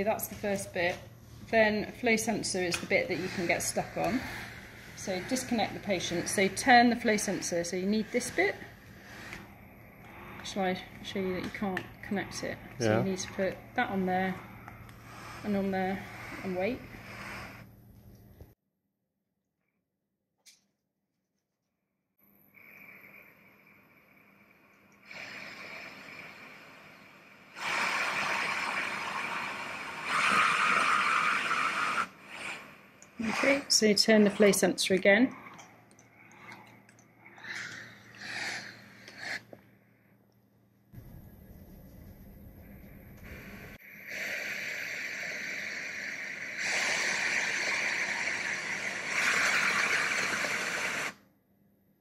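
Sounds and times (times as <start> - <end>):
ventilator gas hiss: 0.0 - 17.8, 22.5 - 35.2, 42.8 - 51.2
low rumble: 41.0 - 43.8.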